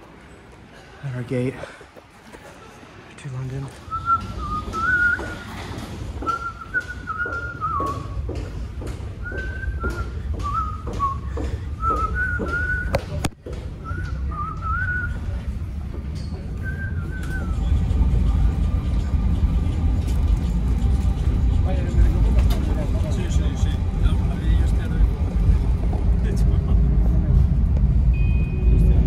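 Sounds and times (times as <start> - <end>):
quick footsteps: 3.7 - 15.2
person whistling a tune: 3.9 - 5.4
low steady rumble: 13.9 - 29.0.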